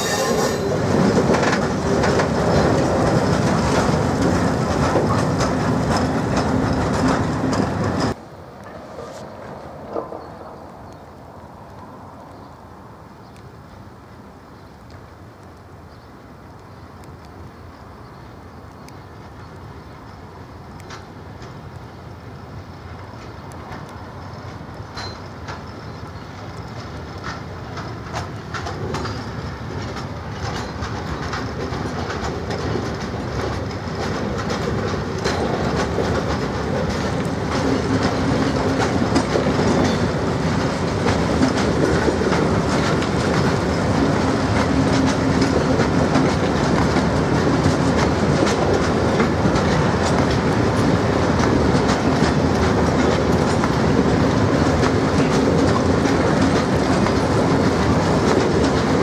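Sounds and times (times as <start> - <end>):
faint wheel squeal: 0.0 - 0.8
wagon wheels clattering over rail joints: 0.0 - 8.2, 23.2 - 59.0.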